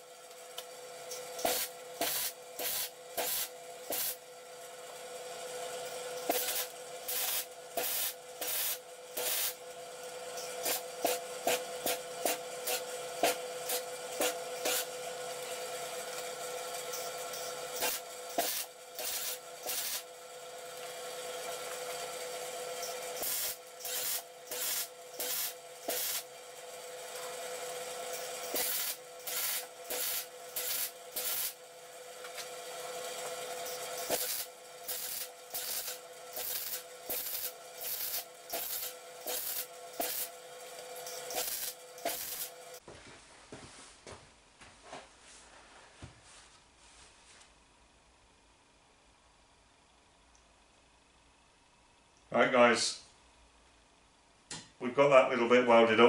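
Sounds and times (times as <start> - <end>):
steady hum: 0.0 - 15.6, 16.9 - 20.3, 22.8 - 26.3, 27.6 - 32.5, 33.4 - 55.6
welding arc crackling: 1.4 - 4.2, 6.2 - 9.6, 10.4 - 15.0, 16.9 - 20.1, 22.8 - 26.3, 28.1 - 31.6, 33.6 - 42.8.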